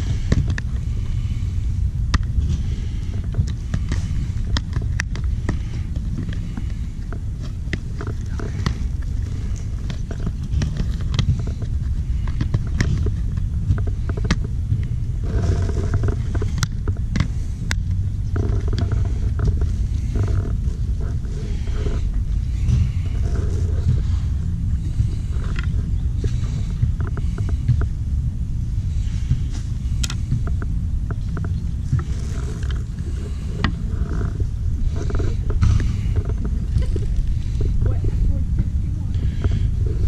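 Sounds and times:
road rumble inside a car: 0.0s - 40.0s
small clicks and rattles: 3.0s - 24.1s.

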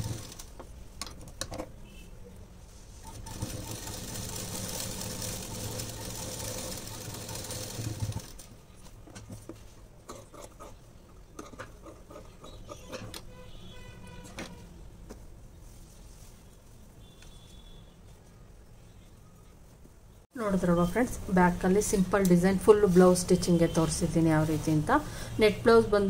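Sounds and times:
sewing machine stitching: 0.0s - 0.6s, 3.0s - 8.5s.

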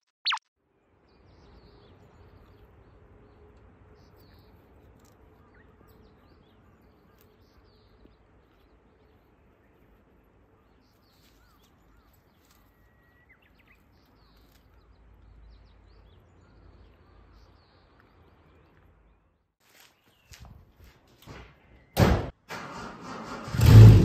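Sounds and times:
short bird chirps: 0.2s - 0.4s.

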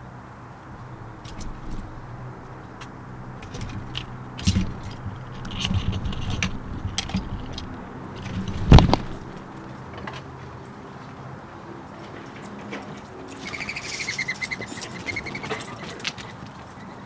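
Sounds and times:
squirrel claws scraping camera: 0.7s - 10.2s.

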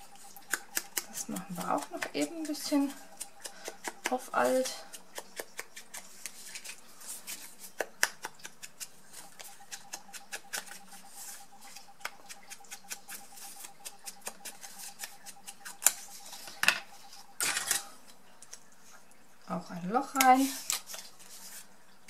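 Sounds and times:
scratchy scraping on paper: 9.1s - 17.8s.

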